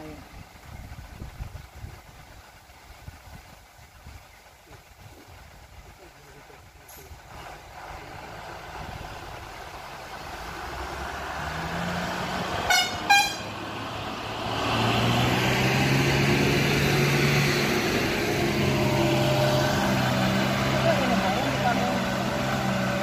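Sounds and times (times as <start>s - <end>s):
truck engine running: 6.0s - 23.0s
truck horn toots: 12.6s - 13.6s.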